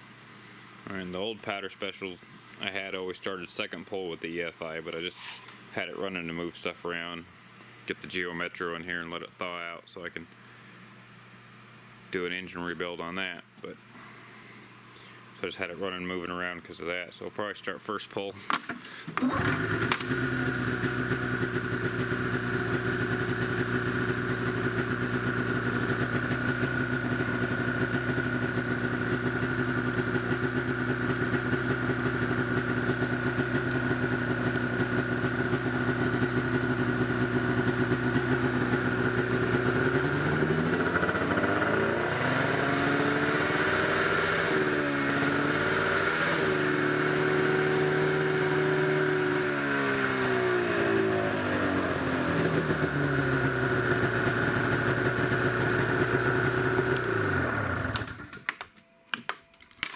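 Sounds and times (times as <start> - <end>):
snowmobile engine idling and revving: 19.2 - 58.2.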